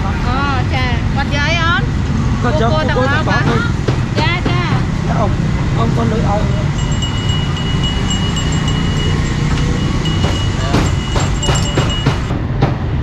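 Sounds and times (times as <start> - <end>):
low traffic rumble: 0.0 - 13.0
high ringing tone: 6.6 - 12.3
sharp knocks: 6.8 - 13.0.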